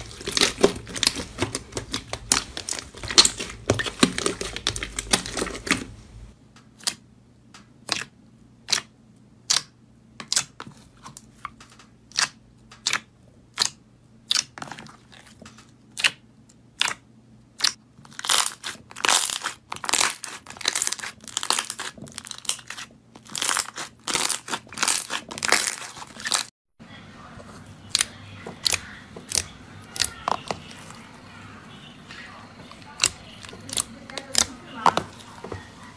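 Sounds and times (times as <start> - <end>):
slime popping and squelching: 0.0 - 6.0, 17.6 - 26.5, 27.9 - 31.3, 32.4 - 35.9.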